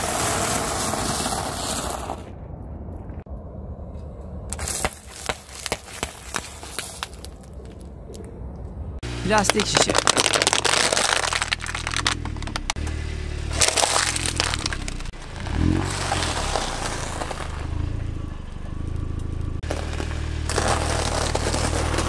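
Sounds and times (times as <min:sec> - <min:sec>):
low engine hum: 0:07.5 - 0:22.0
crunchy food being crushed: 0:09.3 - 0:12.8, 0:13.6 - 0:17.6, 0:19.6 - 0:22.0
tyre crushing plastic bottle: 0:09.3 - 0:12.8, 0:13.6 - 0:17.6, 0:19.7 - 0:22.0.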